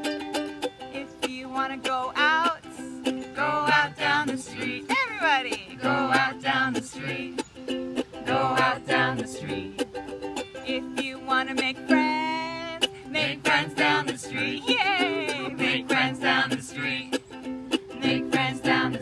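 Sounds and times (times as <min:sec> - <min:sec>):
ukulele strumming: 0:00.0 - 0:19.0
woman singing folk melody: 0:00.0 - 0:19.0.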